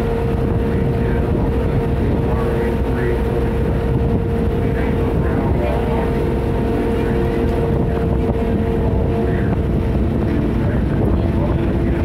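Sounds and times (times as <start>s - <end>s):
boat engine rumbling: 0.0s - 12.0s
wind buffeting microphone: 0.0s - 12.0s.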